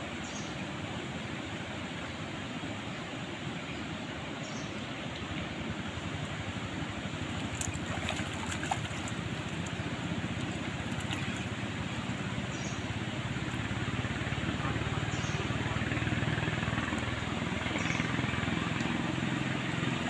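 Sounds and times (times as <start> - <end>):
river water rushing: 0.0 - 20.0
light clicks and splashes: 7.2 - 12.3, 17.7 - 20.0.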